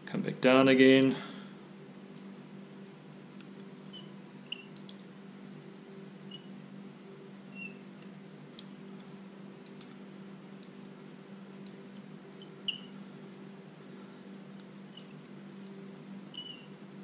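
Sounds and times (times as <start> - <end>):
steady low hum: 0.0 - 17.0
bobbin squeaks and clicks: 3.9 - 4.9, 6.3 - 6.6, 7.5 - 7.9, 12.4 - 13.0, 14.9 - 15.2, 16.3 - 16.8.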